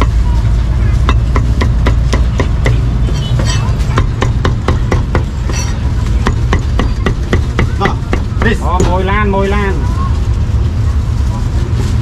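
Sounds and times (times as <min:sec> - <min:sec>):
low traffic rumble: 0:00.0 - 0:12.0
cleaver chopping meat: 0:01.1 - 0:05.5, 0:06.2 - 0:09.0.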